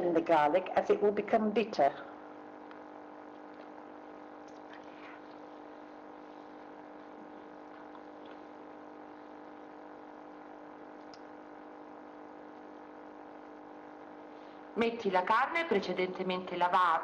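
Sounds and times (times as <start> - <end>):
steady hum: 0.0 - 17.0
faint crackles: 2.2 - 14.7.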